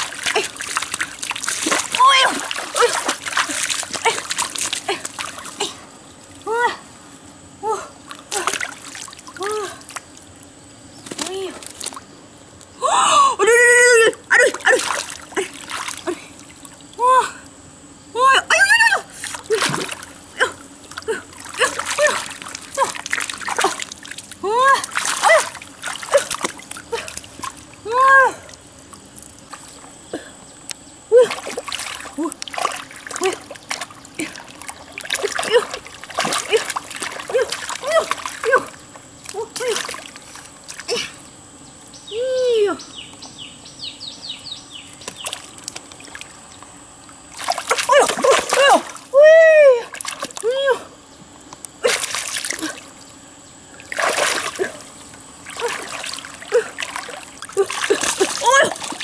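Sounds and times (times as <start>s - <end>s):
hands splashing in muddy water: 0.0s - 5.6s, 21.0s - 27.6s, 31.2s - 40.9s, 47.3s - 49.0s, 53.8s - 59.0s.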